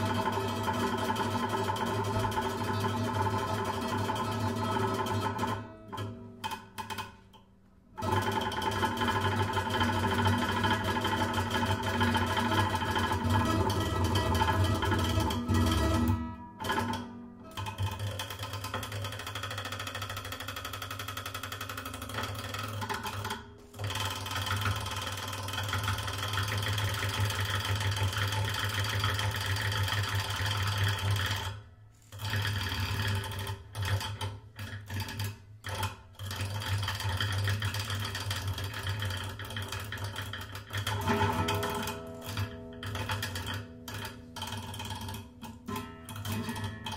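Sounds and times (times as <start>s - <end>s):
guitar strings buzzing drone: 9.7s - 18.3s, 40.9s - 46.9s.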